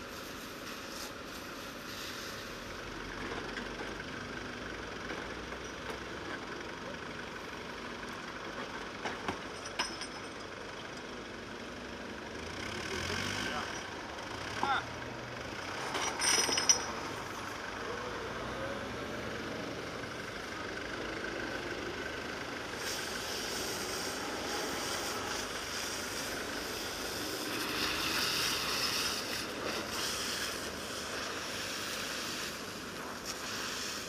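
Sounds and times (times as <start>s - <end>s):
forklift engine running: 0.0s - 34.0s
metallic clank: 15.8s - 17.1s.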